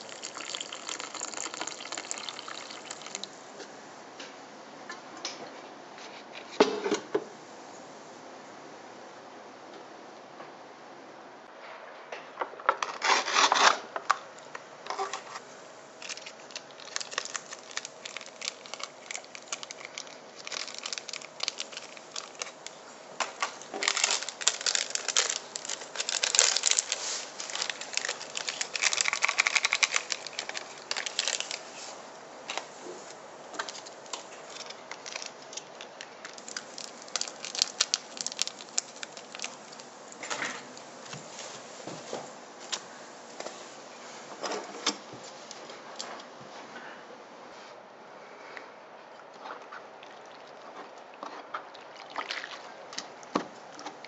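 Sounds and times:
plastic sachets tearing and crinkling: 12.8 - 13.8, 16.0 - 31.8, 33.6 - 40.6.

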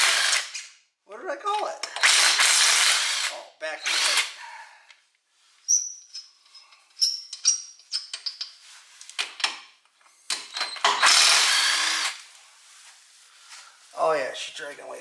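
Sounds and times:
impact wrench bursts: 0.0 - 0.6, 1.8 - 4.4, 10.4 - 12.2.

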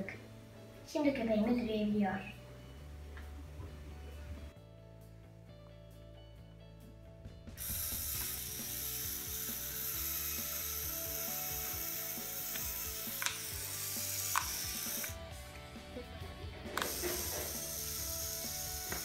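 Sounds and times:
motor whirring with clattering gears: 7.6 - 15.2, 16.7 - 19.0.

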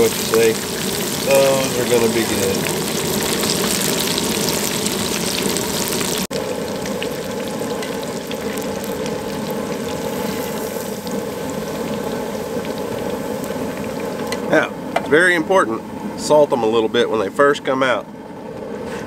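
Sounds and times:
fish deep-frying in oil: 0.0 - 15.6.

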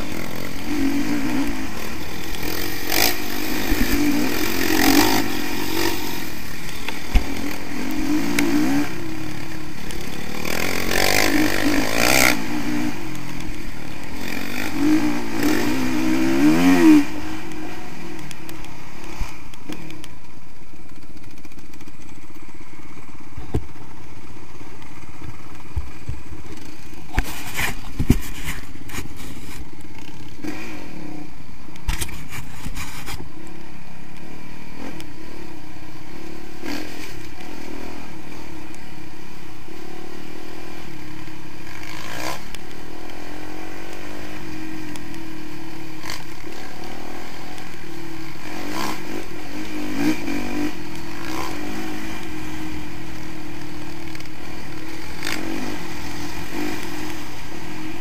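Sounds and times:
dirt bike engine revving: 0.0 - 58.0
bike knocking on rough track: 6.6 - 8.6, 24.8 - 30.3.

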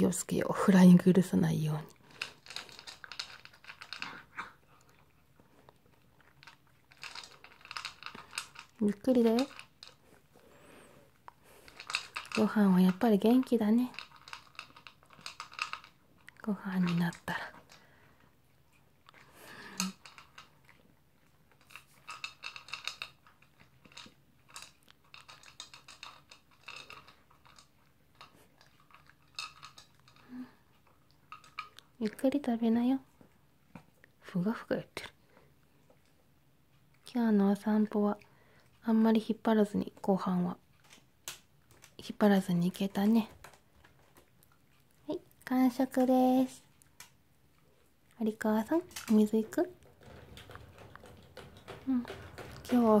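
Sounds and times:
dog crunchy chewing: 1.9 - 32.0
dog chewing food: 2.0 - 13.1, 46.0 - 53.0.

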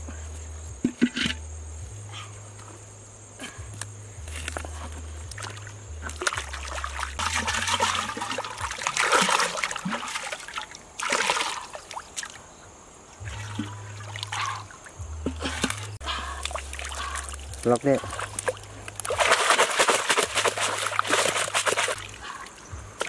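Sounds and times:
water sloshing and splashing: 4.4 - 12.5, 13.2 - 23.0
water pouring from a pot: 5.4 - 11.7, 15.3 - 22.4.

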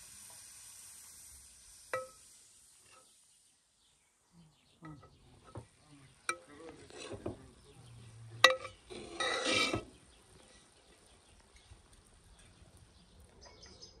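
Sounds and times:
spoon scraping through rice: 6.7 - 7.4, 8.5 - 10.6
metal spoon clinking against pot: 8.4 - 9.9.

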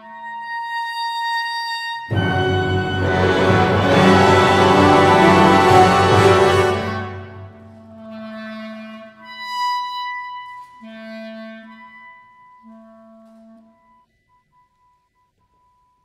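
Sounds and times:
solo clarinet: 0.0 - 15.0
wind band playing: 2.1 - 8.4.

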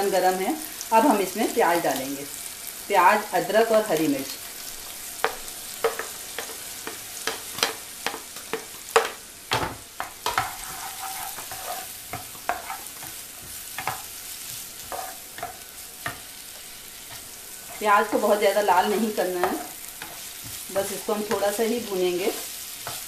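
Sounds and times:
food sizzling in hot oil: 0.0 - 23.0
spatula scraping pan: 10.0 - 23.0.

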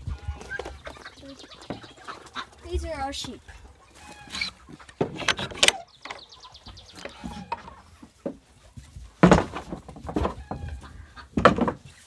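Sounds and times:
wooden door creaking: 4.9 - 6.2.

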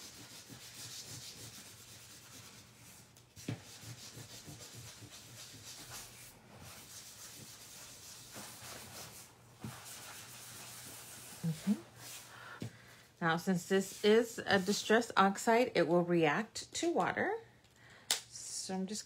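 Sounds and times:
towel rubbing over cardstock: 0.0 - 12.3.

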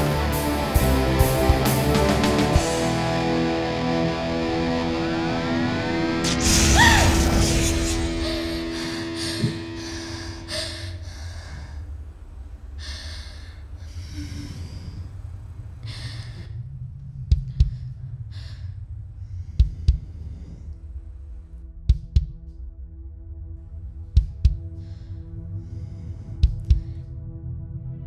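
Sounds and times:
low rumble: 0.8 - 28.0
person breathing heavily: 6.1 - 21.4, 24.2 - 27.3
heartbeat thumps: 17.1 - 18.6, 19.5 - 20.5, 21.7 - 22.7, 24.0 - 24.8, 26.3 - 27.1.

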